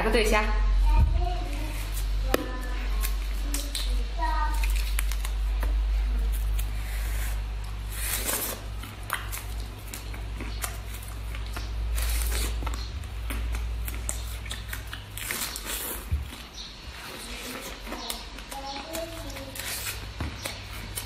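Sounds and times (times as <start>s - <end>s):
steady low hum: 0.0s - 21.0s
chewing: 7.6s - 21.0s.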